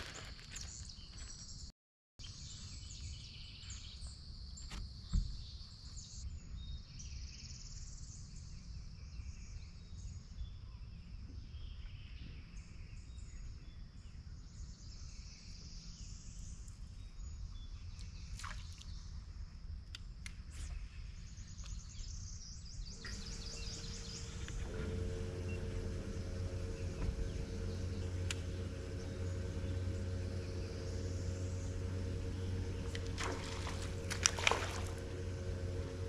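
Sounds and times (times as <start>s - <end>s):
low rumble: 22.9s - 36.0s
insects droning: 23.0s - 36.0s.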